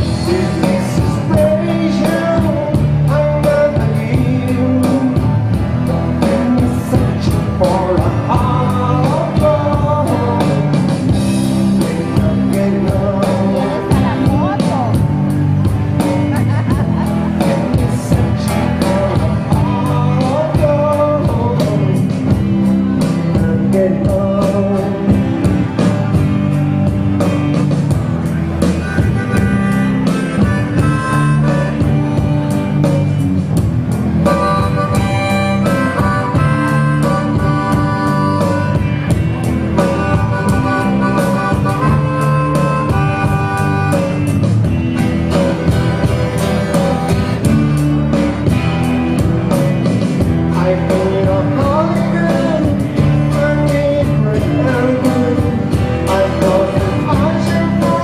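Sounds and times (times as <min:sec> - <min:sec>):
live band playing: 0:00.0 - 0:58.0
harmonica wailing: 0:28.6 - 0:33.0, 0:33.9 - 0:49.7.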